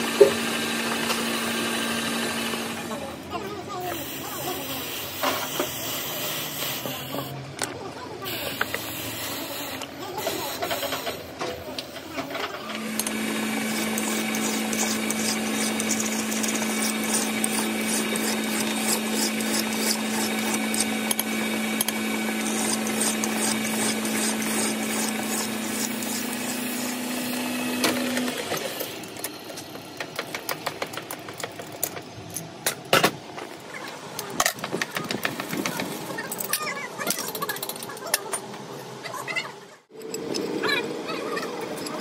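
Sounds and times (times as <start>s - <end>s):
metal lathe humming: 0.0s - 3.3s, 12.7s - 29.2s
file rasping on metal: 12.8s - 27.9s.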